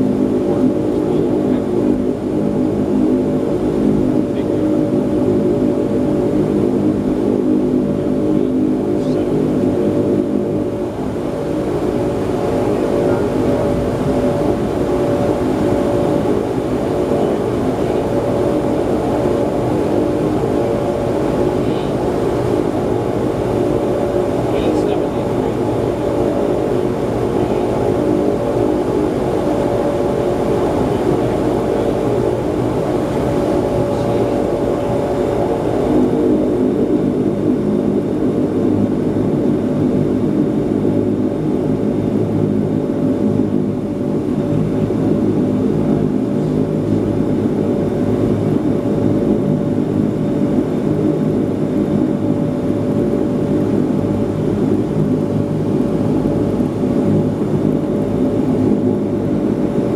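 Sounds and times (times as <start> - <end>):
turboprop engines droning: 0.0 - 59.9.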